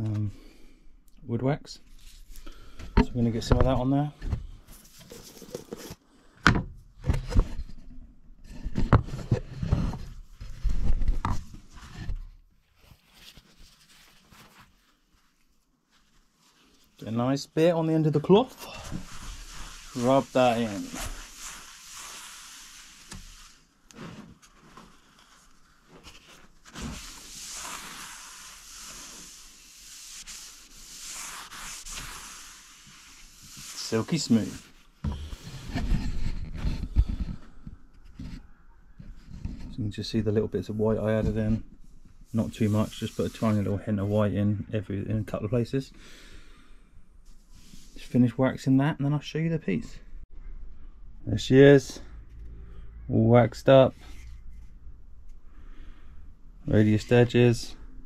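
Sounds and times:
cloth swishing on wood: 18.8 - 34.8.

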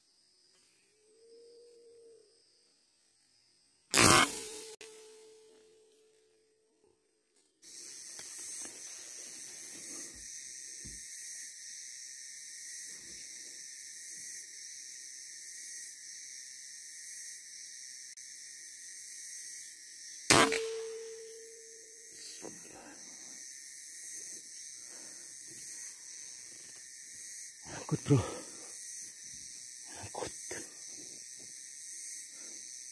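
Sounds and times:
high insect drone: 0.0 - 32.9
air rifle shot: 20.3 - 21.3.

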